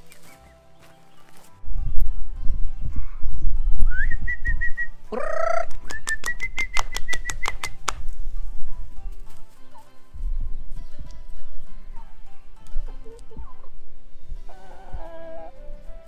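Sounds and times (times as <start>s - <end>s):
high whistle-like chirps: 3.8s - 7.6s
chicken squawking: 5.1s - 5.8s, 14.5s - 15.7s.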